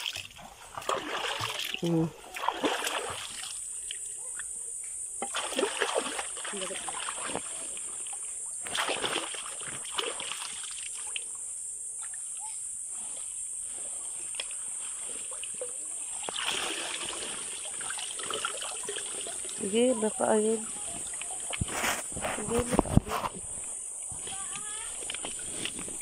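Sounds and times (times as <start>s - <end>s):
shallow seawater splashing: 0.0s - 3.6s, 15.0s - 22.2s.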